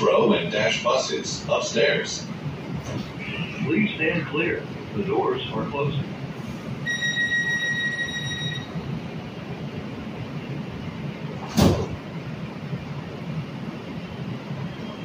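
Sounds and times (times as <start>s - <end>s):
low hum of train: 0.0s - 15.0s
high electronic warning tone: 6.9s - 8.8s
sliding doors thumping shut: 11.4s - 12.1s.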